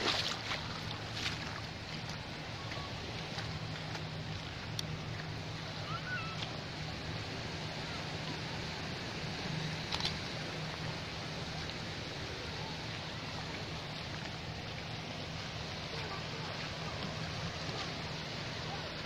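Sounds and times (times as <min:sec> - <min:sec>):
gentle surf on shore: 0:00.0 - 0:19.0
faint distant voices: 0:10.5 - 0:19.0.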